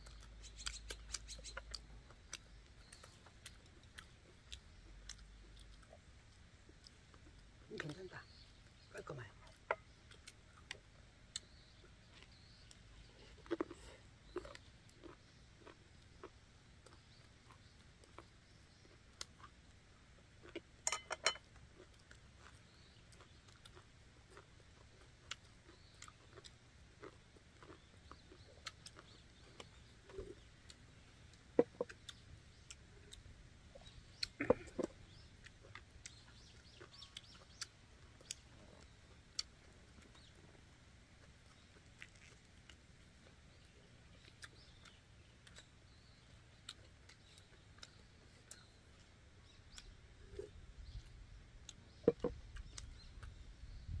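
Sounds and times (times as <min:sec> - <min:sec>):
chewing: 0:00.0 - 0:08.0, 0:09.4 - 0:53.5
chopsticks and dishes clicking: 0:20.9 - 0:21.4.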